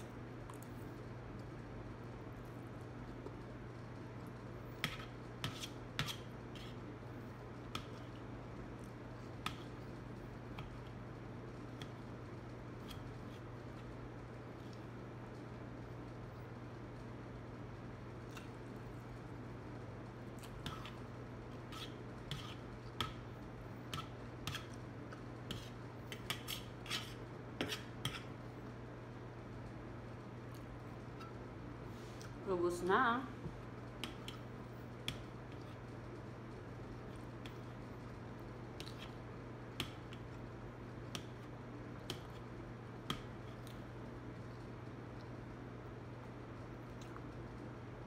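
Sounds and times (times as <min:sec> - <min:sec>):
steady low hum: 0:00.0 - 0:48.0
fork scraping on plate: 0:04.8 - 0:06.8, 0:21.6 - 0:22.7, 0:25.5 - 0:28.4, 0:31.1 - 0:31.4.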